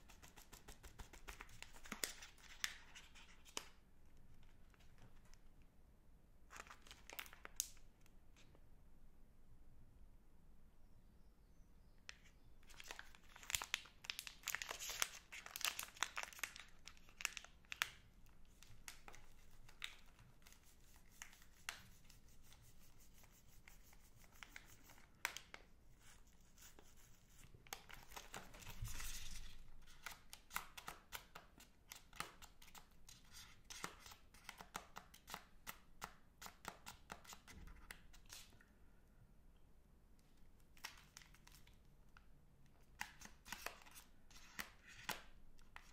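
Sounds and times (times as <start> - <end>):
plastic wrappers crinkling: 6.5 - 7.7, 12.6 - 20.6.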